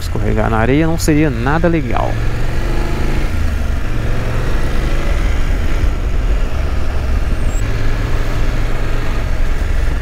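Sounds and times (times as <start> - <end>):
motorcycle engine running: 0.0 - 10.0
wind rumble on microphone: 3.3 - 7.6.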